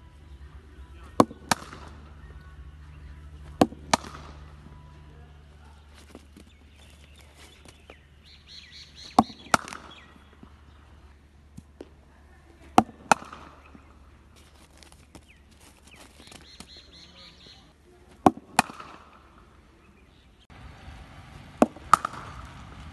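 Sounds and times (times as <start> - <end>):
bat hitting cricket ball: 0.4 - 4.9, 5.8 - 15.3, 18.1 - 19.7, 21.6 - 22.6.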